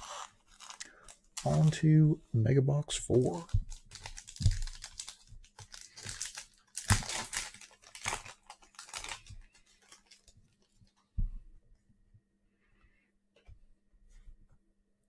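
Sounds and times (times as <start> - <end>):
packaging tearing and crinkling: 0.0 - 1.8, 3.3 - 10.3.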